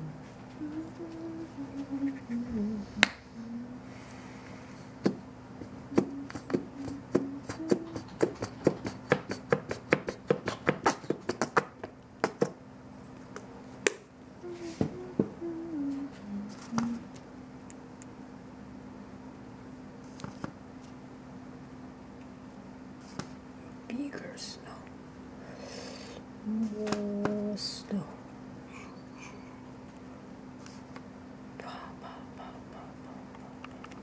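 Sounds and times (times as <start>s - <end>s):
person humming low notes: 0.0s - 4.3s, 5.8s - 8.8s, 14.4s - 17.2s.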